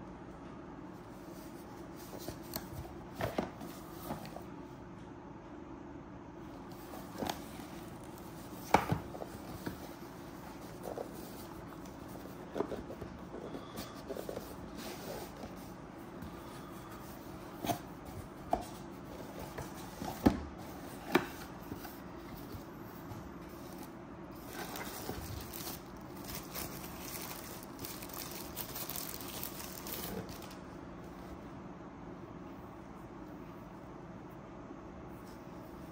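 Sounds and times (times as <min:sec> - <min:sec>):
cardboard box handled and opened: 0:23.4 - 0:30.6
plastic bag crinkling: 0:24.4 - 0:30.6.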